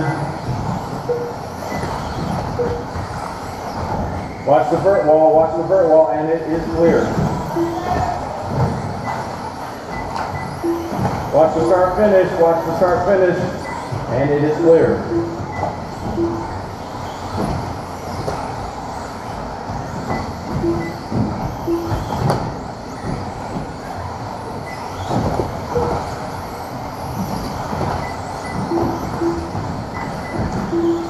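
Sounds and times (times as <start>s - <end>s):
rc buggy motors and tyres: 0.0s - 31.0s
short beeps: 1.0s - 1.9s, 2.6s - 3.0s, 7.5s - 8.2s, 9.9s - 11.0s, 14.9s - 16.8s, 20.1s - 22.2s, 25.7s - 26.1s, 28.0s - 31.0s.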